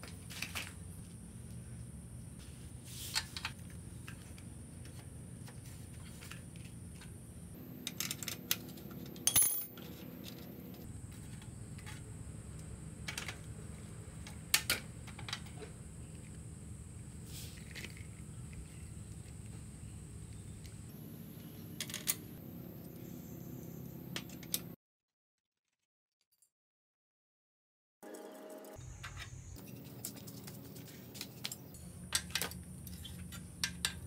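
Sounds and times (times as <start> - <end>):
metal clicks and clinks: 9.0 - 10.0.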